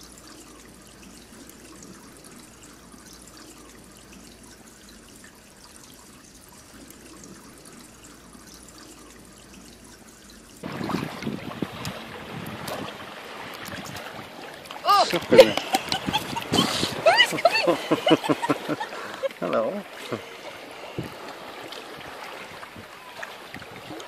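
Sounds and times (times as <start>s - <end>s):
water trickling: 0.0s - 24.0s
rush of wind and water: 10.6s - 24.0s.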